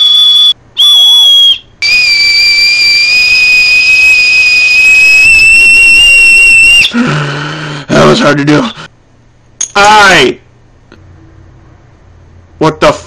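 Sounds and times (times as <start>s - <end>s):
shrill whistle blasts: 0.0s - 6.9s.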